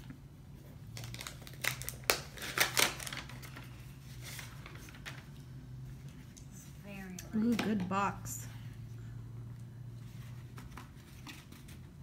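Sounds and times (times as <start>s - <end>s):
wrapping paper tearing and crumpling: 0.8s - 5.2s.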